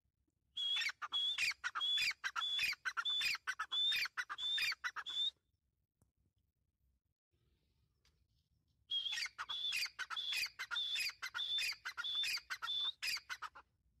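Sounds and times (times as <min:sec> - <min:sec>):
bird calling: 0:00.6 - 0:05.4, 0:08.9 - 0:13.6.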